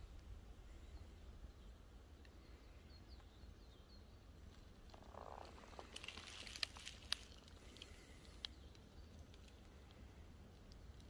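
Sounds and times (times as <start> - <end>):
sharp clicks and crackles: 4.5 - 11.0.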